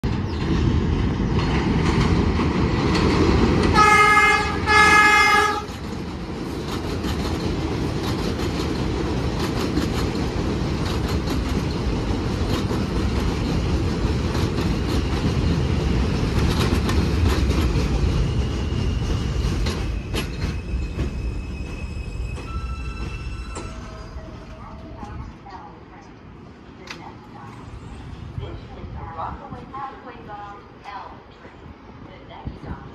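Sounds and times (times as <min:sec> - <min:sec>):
train rumbling over track: 0:00.0 - 0:32.9
wheels clicking over rail joints: 0:00.4 - 0:18.2
train horn blasts: 0:03.7 - 0:05.8
high brake squeal: 0:18.3 - 0:24.7.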